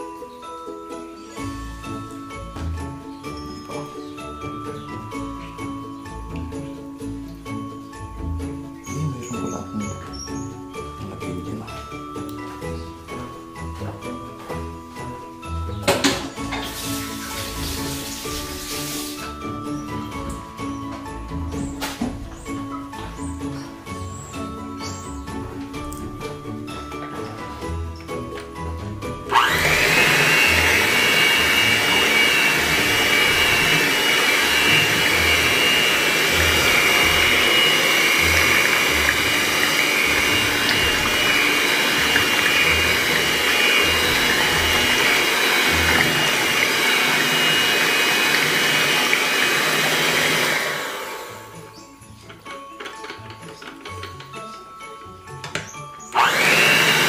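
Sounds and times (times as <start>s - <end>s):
background music with beat: 0.0s - 57.0s
electric hand mixer whining: 16.4s - 20.7s, 29.1s - 51.8s, 56.0s - 57.0s.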